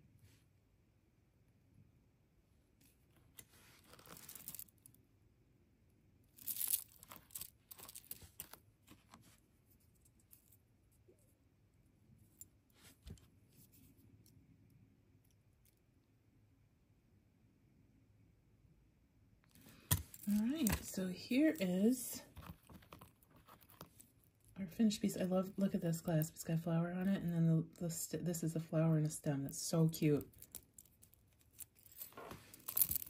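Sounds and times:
soft rustle: 0:02.8 - 0:05.0, 0:06.4 - 0:11.4, 0:12.2 - 0:14.3, 0:19.5 - 0:24.6, 0:30.3 - 0:33.0
small metal clicks and scrapes: 0:30.2 - 0:33.0.

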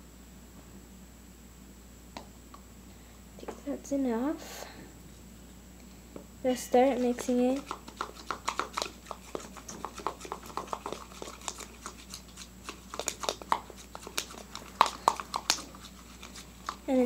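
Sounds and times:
spoon scraping plastic bowl: 0:06.8 - 0:16.9.

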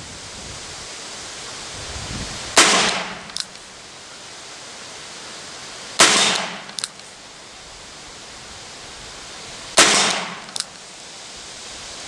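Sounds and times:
revolver shots: 0:02.6 - 0:03.3, 0:09.8 - 0:10.5.

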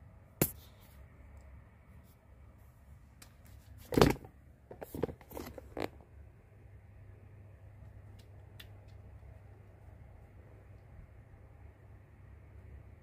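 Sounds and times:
low steady hum: 0:00.0 - 0:13.0
handling clicks and rustles: 0:03.2 - 0:06.1.

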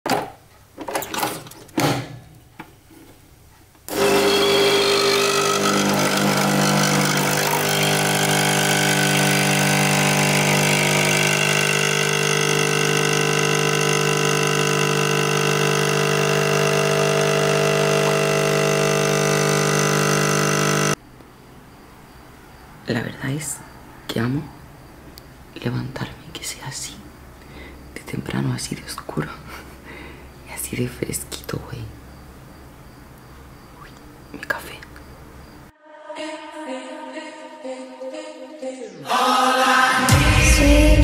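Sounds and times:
motor humming and hissing: 0:03.9 - 0:21.0.

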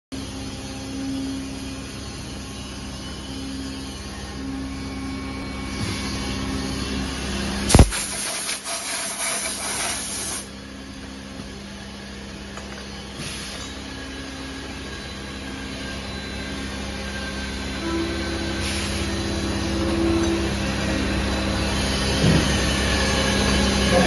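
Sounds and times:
compressed air blow gun hissing: 0:07.7 - 0:10.5
low machine hum: 0:10.5 - 0:24.0.

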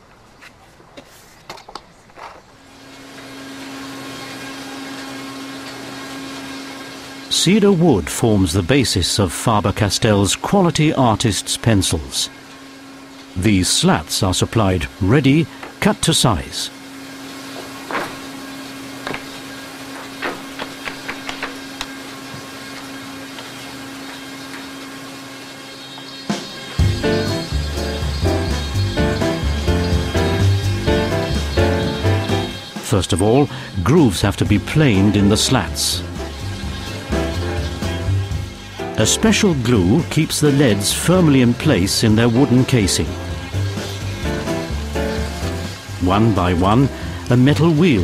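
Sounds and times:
factory machinery humming: 0:02.6 - 0:48.0
wooden slats clacking: 0:19.0 - 0:21.9.

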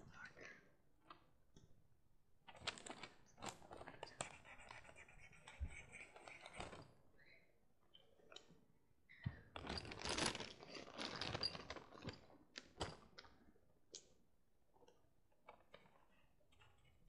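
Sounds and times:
rustling and crinkling handling: 0:02.5 - 0:04.5, 0:09.4 - 0:13.2.

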